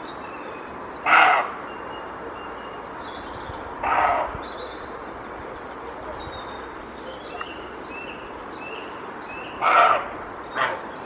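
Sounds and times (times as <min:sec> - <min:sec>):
deer barking: 0:01.1 - 0:01.5, 0:03.8 - 0:04.4, 0:09.6 - 0:10.9.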